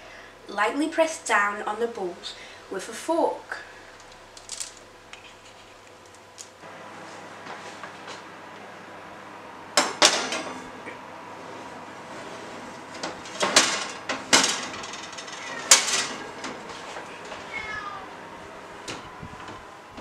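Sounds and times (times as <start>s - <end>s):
metal baking trays clattering: 9.8s - 10.8s, 12.1s - 17.6s.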